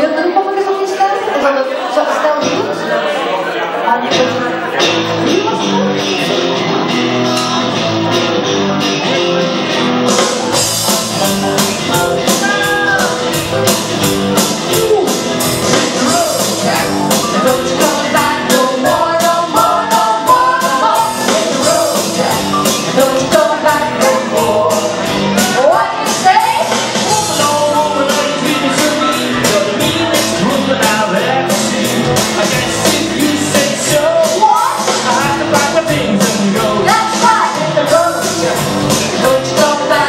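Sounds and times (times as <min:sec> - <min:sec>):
electric guitars: 0:04.0 - 0:40.0
bass guitar: 0:04.1 - 0:40.0
drum kit with cymbal beat: 0:04.8 - 0:40.0
woman singing: 0:17.2 - 0:31.1, 0:32.8 - 0:40.0.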